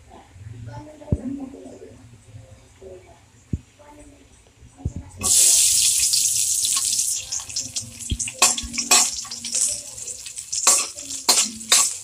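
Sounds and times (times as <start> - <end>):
garlic sizzling in hot oil: 5.2 - 12.0
metal ladle scraping pan: 8.4 - 12.0.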